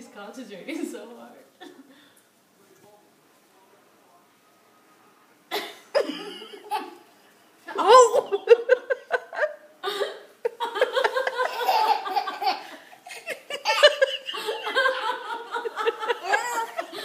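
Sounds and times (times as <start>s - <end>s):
toddler laughing: 10.9s - 15.2s, 16.0s - 17.0s.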